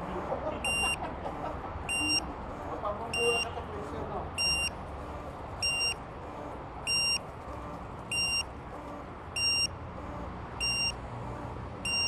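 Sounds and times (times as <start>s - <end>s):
high-pitched electronic beeps: 0.7s - 1.0s, 1.9s - 2.2s, 4.4s - 4.7s, 5.6s - 6.0s, 6.9s - 7.2s, 8.1s - 8.4s, 9.4s - 9.7s, 10.6s - 11.0s.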